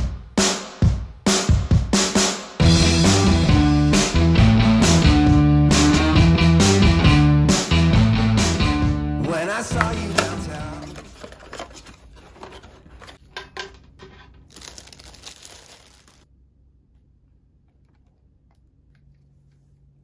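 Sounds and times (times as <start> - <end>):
packaging crinkling: 10.0 - 13.2, 14.1 - 16.3.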